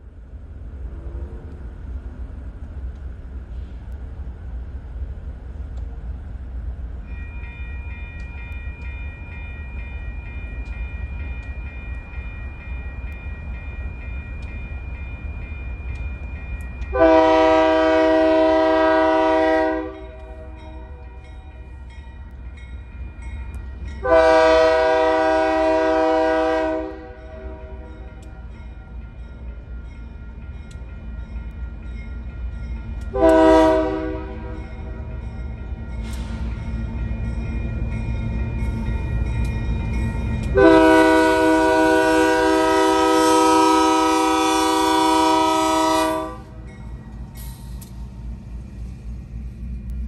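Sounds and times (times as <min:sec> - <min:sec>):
crossing warning bell: 0:06.8 - 0:50.0
locomotive air horn blasts: 0:16.9 - 0:20.6, 0:24.0 - 0:27.9, 0:33.1 - 0:34.6, 0:40.6 - 0:46.6.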